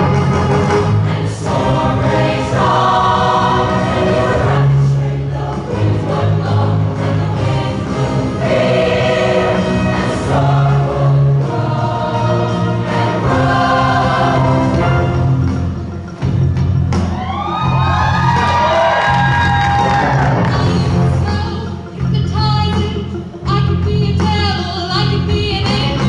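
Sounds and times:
live band accompaniment: 0:00.0 - 0:02.4, 0:11.5 - 0:26.0
steady bass line: 0:00.0 - 0:26.0
women's choir singing: 0:00.8 - 0:15.1.

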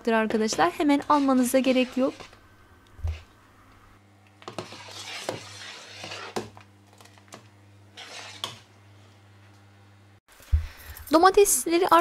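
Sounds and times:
ladle stirring boiling puree: 0:00.5 - 0:02.4, 0:04.3 - 0:08.8.

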